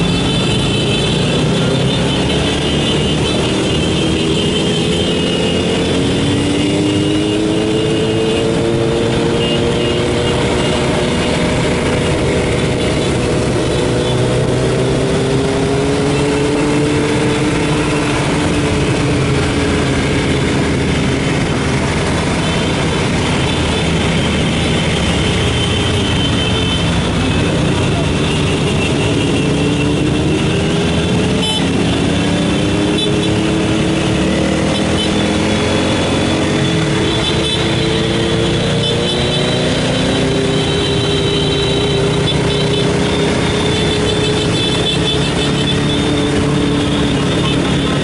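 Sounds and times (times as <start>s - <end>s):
motorcycle engines running: 0.0s - 48.0s.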